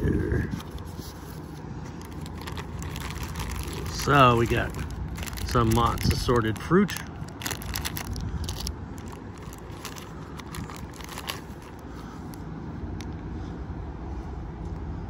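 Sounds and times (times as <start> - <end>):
low background rumble: 0.0 - 15.0
plastic bags crinkling: 1.8 - 12.4.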